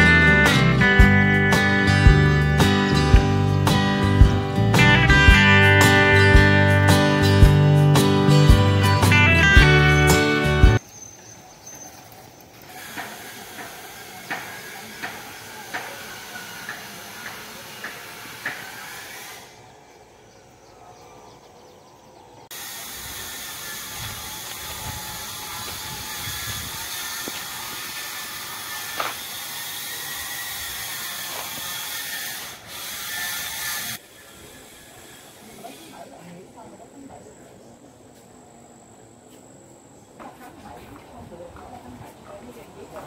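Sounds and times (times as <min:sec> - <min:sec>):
high-pitched outdoor hiss: 0:00.0 - 0:20.8, 0:21.6 - 0:43.0
footsteps on dirt path: 0:23.8 - 0:32.0.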